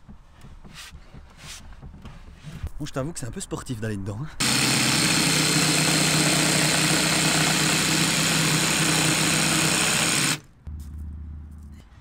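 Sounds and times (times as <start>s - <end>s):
jigsaw cutting wood: 4.4s - 10.4s.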